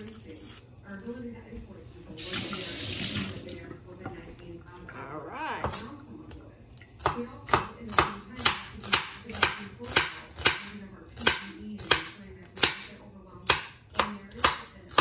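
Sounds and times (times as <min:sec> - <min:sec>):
knife chopping on cutting board: 0:07.0 - 0:15.0.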